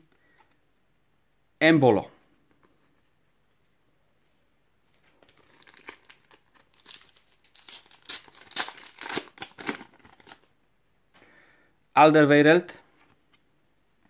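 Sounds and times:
foil wrapper tearing and crinkling: 0:05.1 - 0:10.5.

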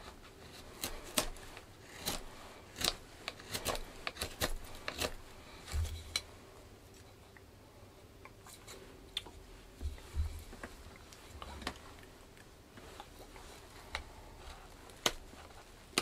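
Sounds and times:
knife whittling wood: 0:00.0 - 0:06.3.

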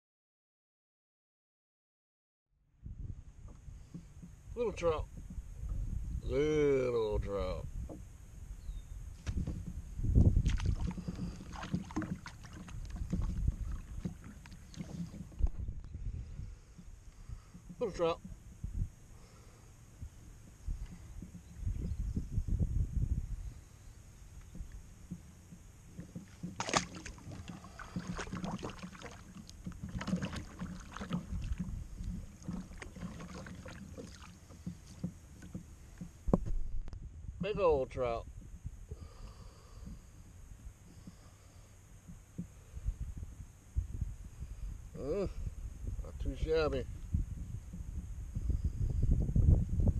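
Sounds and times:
knocks and bumps on plastic kayak: 0:03.5 - 0:04.4, 0:09.2 - 0:15.8, 0:20.7 - 0:22.6, 0:24.5 - 0:37.6.

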